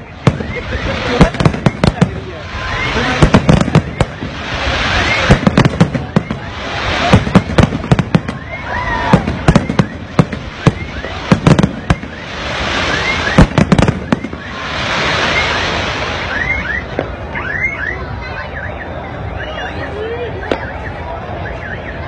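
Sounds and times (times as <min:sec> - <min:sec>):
fireworks crackling hiss: 0:00.0 - 0:17.4
firework bangs: 0:00.0 - 0:17.6
firework whistles: 0:00.0 - 0:22.0.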